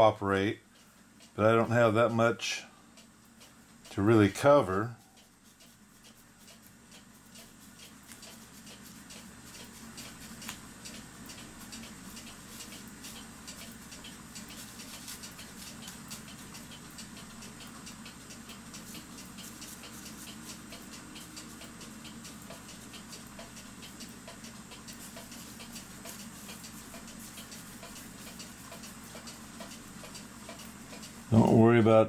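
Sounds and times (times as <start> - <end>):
brush on metal leaf: 4.5 - 10.6, 11.6 - 16.6, 18.8 - 21.7, 24.9 - 31.0
foil crinkling in light ticks: 5.0 - 31.2.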